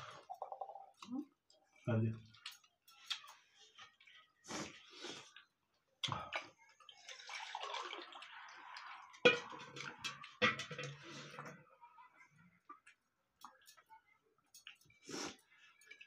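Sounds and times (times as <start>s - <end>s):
water pouring into steel tumbler: 6.9s - 11.6s.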